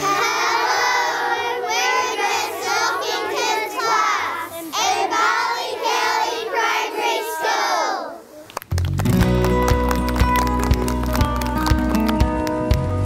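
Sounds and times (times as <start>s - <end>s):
children singing in unison: 0.0s - 8.3s.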